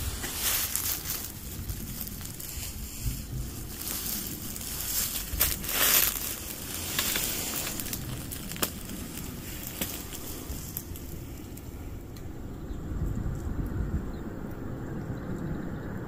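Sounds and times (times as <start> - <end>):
twigs snapping: 0.0 - 12.3
dry grass crackling underfoot: 0.0 - 12.4.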